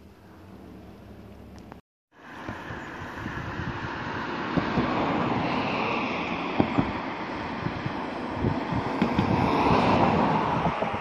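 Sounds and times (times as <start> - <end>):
wind buffeting microphone: 2.3 - 11.0.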